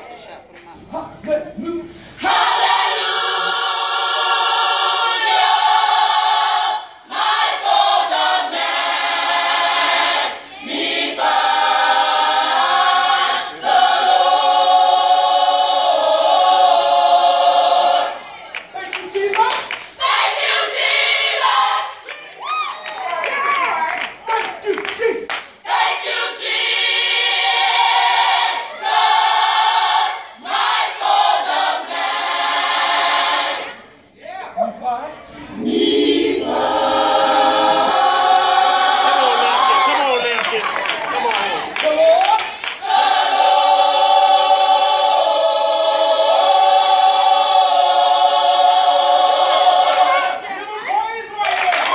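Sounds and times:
choir singing held chords: 2.1 - 18.6, 20.0 - 22.1, 25.6 - 34.2, 35.3 - 40.1, 42.7 - 50.8.

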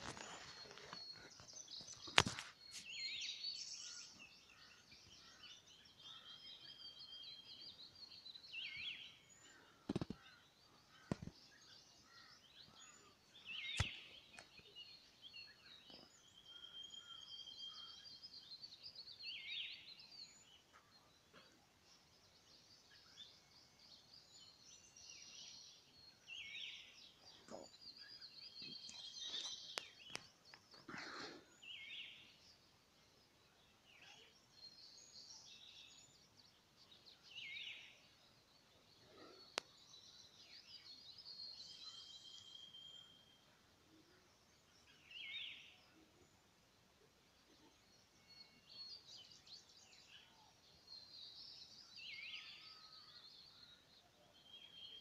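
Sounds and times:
small birds singing and chirping: 0.0 - 55.0.

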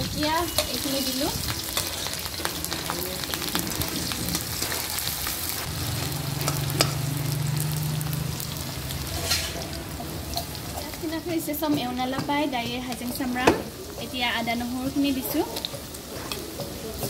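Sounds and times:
onions frying in hot oil: 0.0 - 17.0
metal ladle scraping a pan: 0.3 - 2.5, 9.0 - 11.0.

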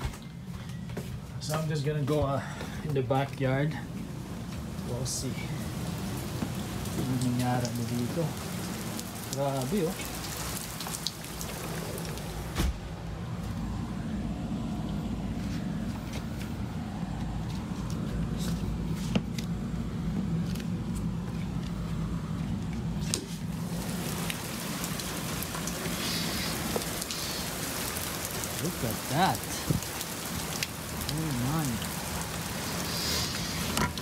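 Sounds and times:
rain and hail falling: 1.4 - 13.8, 20.2 - 34.0
wind rumble on microphone: 29.6 - 30.1.

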